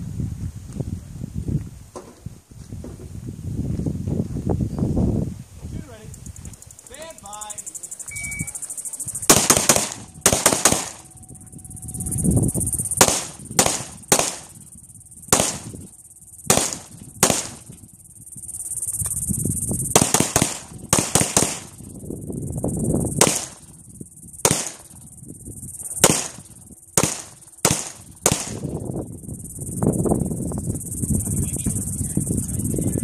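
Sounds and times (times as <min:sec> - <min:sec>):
high insect drone: 0:00.0 - 0:33.0
gunshots: 0:09.2 - 0:11.1, 0:13.0 - 0:14.6, 0:15.3 - 0:15.8, 0:16.5 - 0:17.7, 0:19.9 - 0:21.8, 0:23.2 - 0:23.6, 0:24.4 - 0:24.9, 0:26.0 - 0:28.6.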